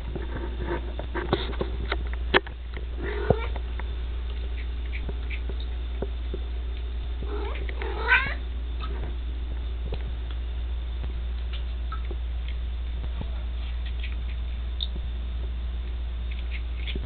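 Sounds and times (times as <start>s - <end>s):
steady low hum: 0.0s - 17.0s
cat meowing: 7.3s - 8.4s.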